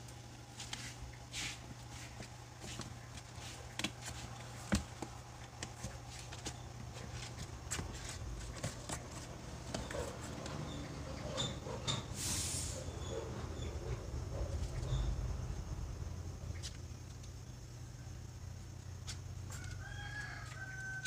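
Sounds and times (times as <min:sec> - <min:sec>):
steady low hum: 0:00.0 - 0:19.8
kitten paws scratching cardboard: 0:00.6 - 0:10.6.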